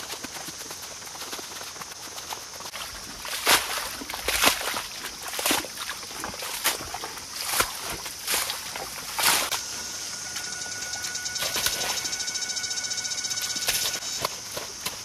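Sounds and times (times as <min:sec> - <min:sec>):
hoe splashing in wet mud: 0:02.7 - 0:09.6.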